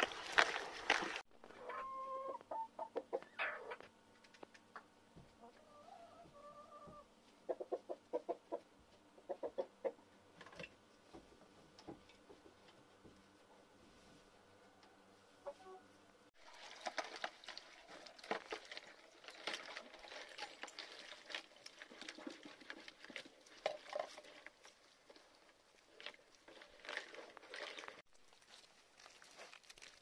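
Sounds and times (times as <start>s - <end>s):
puppies lapping and chewing: 16.4s - 29.9s
plastic scoop dipping into bucket: 16.5s - 24.5s.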